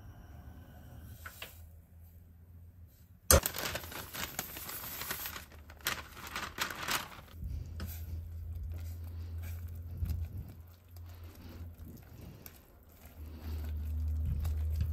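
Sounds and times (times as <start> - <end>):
baking paper crinkling: 3.3 - 14.9
spatula stirring in pan: 7.6 - 14.9.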